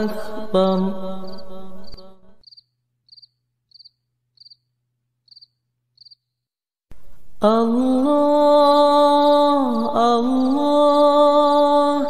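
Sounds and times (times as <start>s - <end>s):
cricket chirping: 1.2s - 6.4s.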